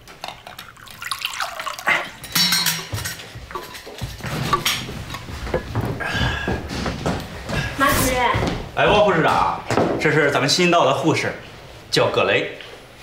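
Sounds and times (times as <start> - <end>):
liquid pouring into a mug: 0.2 - 2.3.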